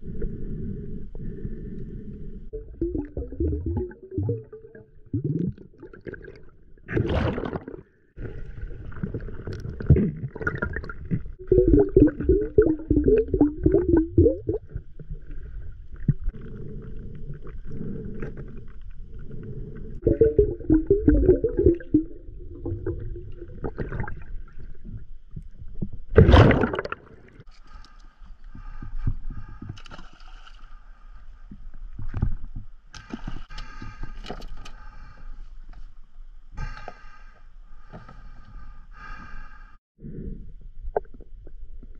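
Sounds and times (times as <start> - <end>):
underwater rumble: 0.0 - 27.4
gurgling bubbles: 2.5 - 16.5, 20.0 - 25.1, 26.1 - 27.4.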